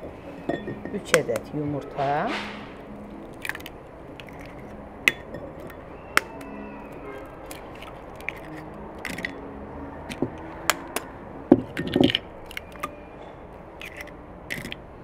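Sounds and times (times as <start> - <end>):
eggs cracking against bowl: 3.1 - 9.4, 10.0 - 13.0, 13.8 - 14.9.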